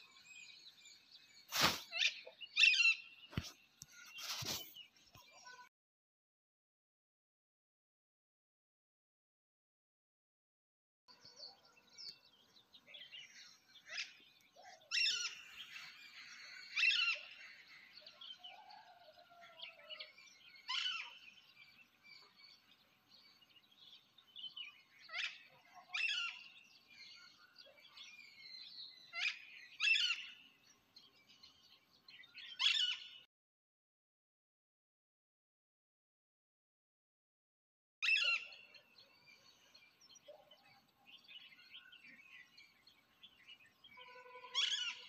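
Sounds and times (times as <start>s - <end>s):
soft bird chirps: 0.0s - 5.7s, 11.1s - 33.3s, 38.0s - 45.0s
bird calls sweeping down: 1.5s - 2.2s.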